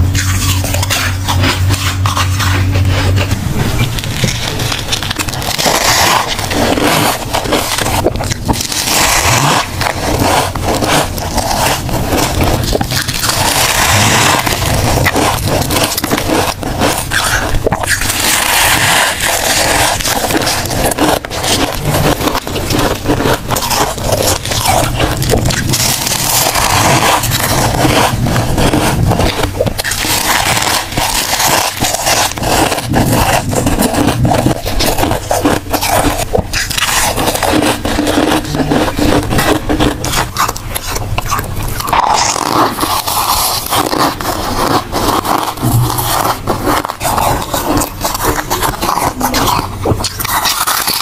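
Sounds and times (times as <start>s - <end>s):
frost crunching and squeaking: 0.0s - 51.0s.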